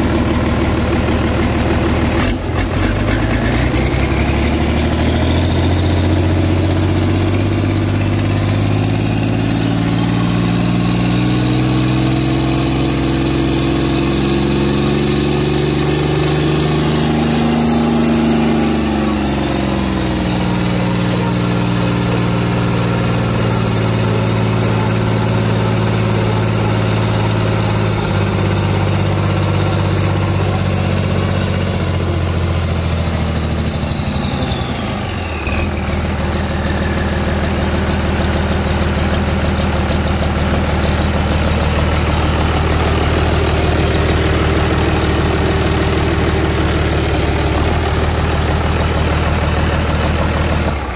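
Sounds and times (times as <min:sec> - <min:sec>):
marine diesel engine idling: 0:00.0 - 0:50.9
high whine: 0:04.8 - 0:35.5.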